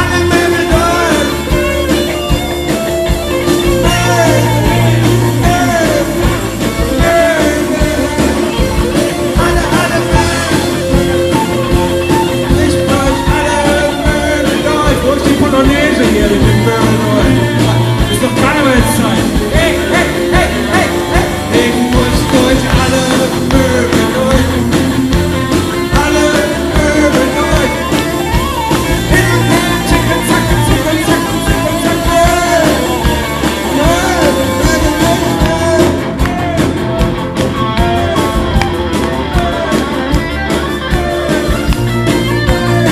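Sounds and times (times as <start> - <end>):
man singing into microphone: 0.0 - 2.0, 3.7 - 11.5, 12.1 - 28.2, 28.8 - 36.8
bass: 0.0 - 42.9
drums: 0.0 - 42.9
electric guitar: 0.0 - 42.9.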